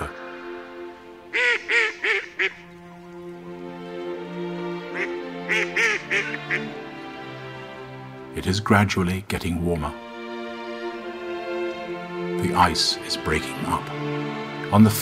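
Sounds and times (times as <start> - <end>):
waterfowl calling: 0.0 - 3.9, 4.7 - 7.8
slow background music: 0.0 - 15.0.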